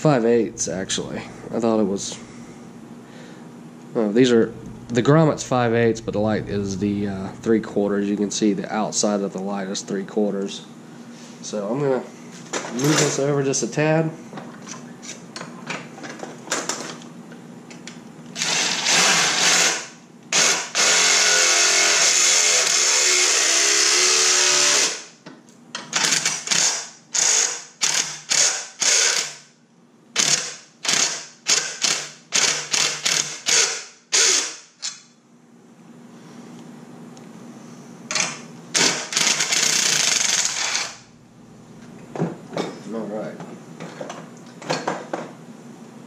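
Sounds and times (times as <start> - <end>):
drill cutting through metal: 18.4 - 25.1, 26.0 - 29.4, 30.2 - 34.6, 38.8 - 41.0.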